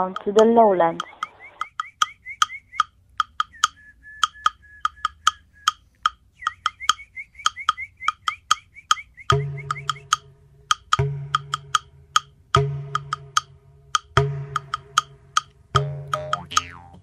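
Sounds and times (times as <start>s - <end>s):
hollow wood-block clicks: 0.0s - 12.3s, 13.0s - 16.7s
thin whistle-like tone: 1.0s - 10.1s.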